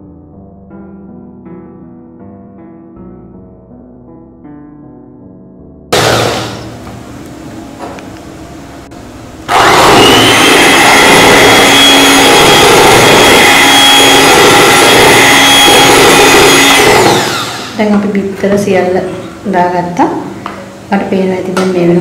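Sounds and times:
electric hand mixer whining: 6.0 - 7.0, 9.5 - 19.5.

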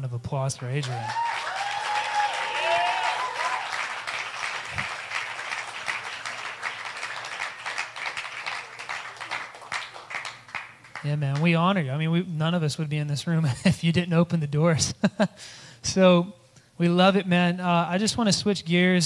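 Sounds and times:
crowd clapping: 0.8 - 11.5.

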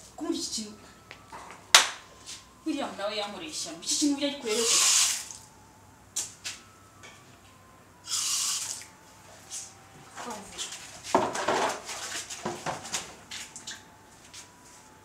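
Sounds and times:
water hiss: 4.5 - 5.4, 8.1 - 8.9.

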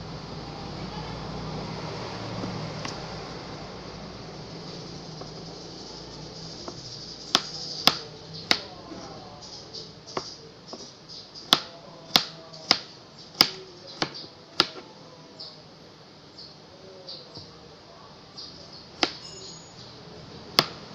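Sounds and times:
knife chopping on cutting board: 5.2 - 5.5, 6.6 - 9.2, 10.1 - 14.9, 19.0 - 19.3, 20.5 - 20.9.

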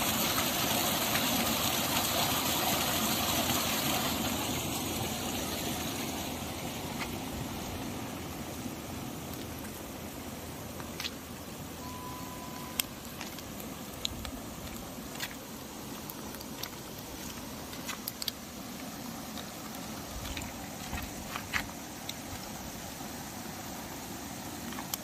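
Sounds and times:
outdoor background hiss: 0.0 - 25.0
steady beep tone: 11.8 - 13.0.

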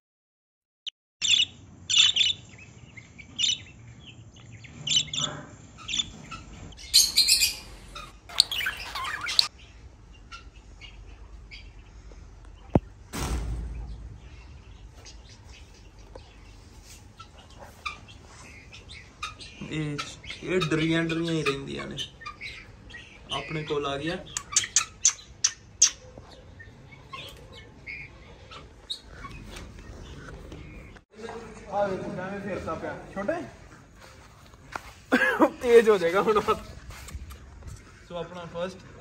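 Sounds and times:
lovebirds chirping: 1.2 - 39.0
low rumble: 9.6 - 16.8.

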